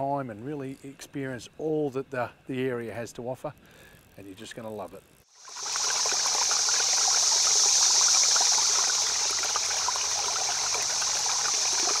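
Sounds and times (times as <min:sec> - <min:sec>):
river water over stones: 0:05.3 - 0:12.0
small trickling splashes: 0:05.3 - 0:12.0.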